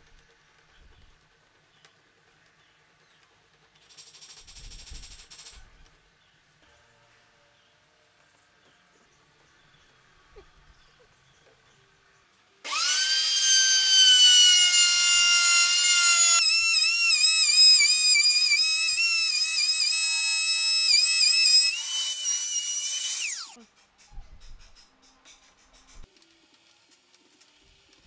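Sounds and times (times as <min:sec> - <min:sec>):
router cutting wood: 0:12.7 - 0:23.6
router motor whining: 0:12.7 - 0:23.6.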